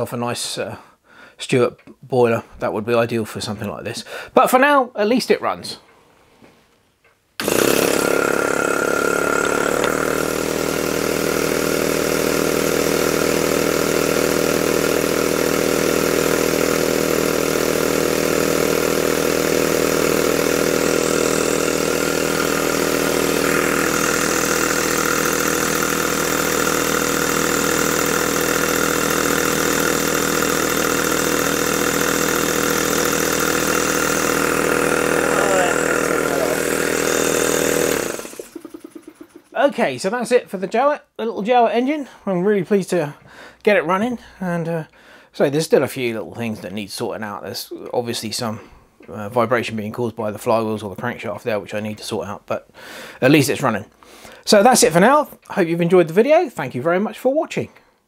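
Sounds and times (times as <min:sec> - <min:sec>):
model steam engine running: 0:07.4 - 0:39.5.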